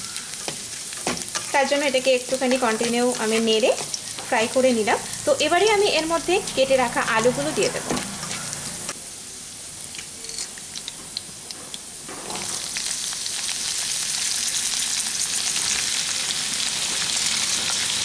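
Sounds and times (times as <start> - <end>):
potatoes sizzling in oil: 0.0 - 18.0
spices crackling in hot oil: 0.0 - 18.0.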